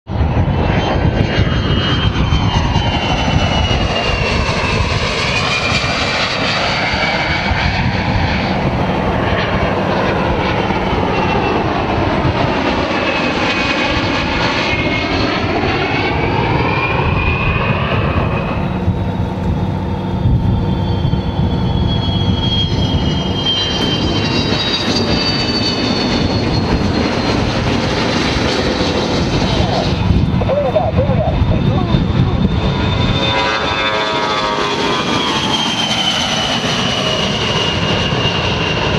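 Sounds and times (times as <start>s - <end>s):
jet aircraft roar passing: 0.1s - 38.9s
high whine falling in pitch: 17.7s - 36.6s.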